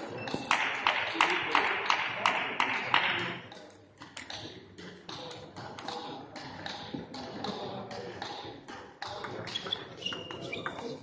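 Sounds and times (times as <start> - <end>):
table tennis ball clicking: 2.9 - 7.6.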